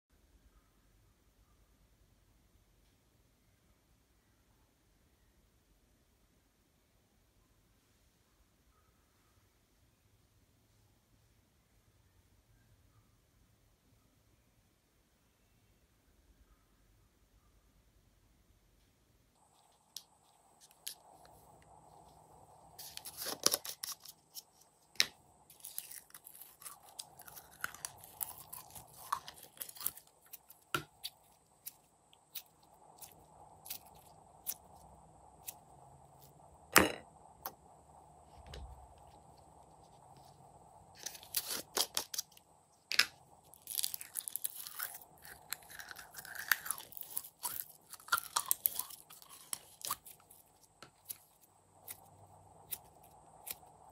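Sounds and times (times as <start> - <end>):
slime squishing and popping: 42.9 - 50.4.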